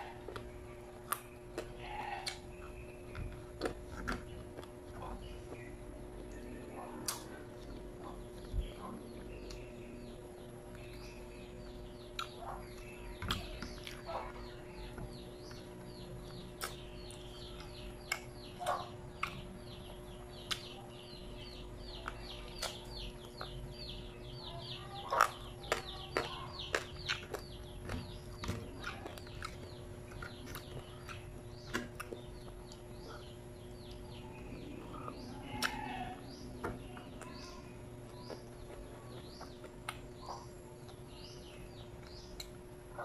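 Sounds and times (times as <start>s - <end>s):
birds chirping: 0.0s - 43.0s
faint steady hum: 0.0s - 43.0s
chewing and lip smacks: 0.2s - 9.6s, 12.0s - 14.5s, 16.4s - 19.6s, 20.3s - 20.8s, 21.9s - 23.6s, 25.0s - 35.8s, 38.1s - 41.1s.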